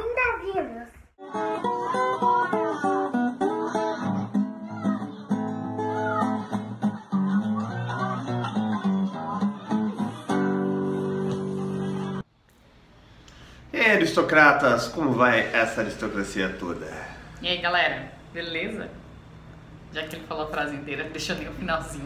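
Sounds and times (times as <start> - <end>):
acoustic guitar music: 1.2 - 12.3.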